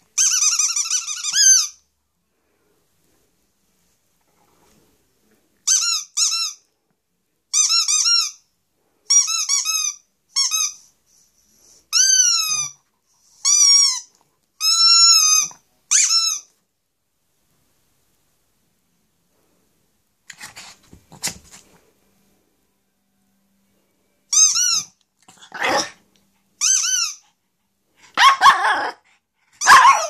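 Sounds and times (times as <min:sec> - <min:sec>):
squeaky rubber toy squeaks: 0:00.2 - 0:01.8, 0:05.6 - 0:06.7, 0:07.5 - 0:08.5, 0:09.1 - 0:10.9, 0:11.9 - 0:16.5, 0:24.3 - 0:25.9, 0:26.6 - 0:27.4, 0:29.6 - 0:30.0.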